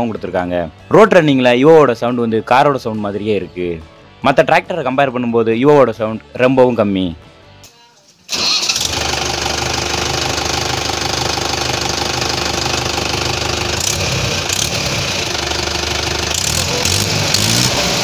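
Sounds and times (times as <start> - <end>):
tractor diesel engine idling: 8.3 - 18.0.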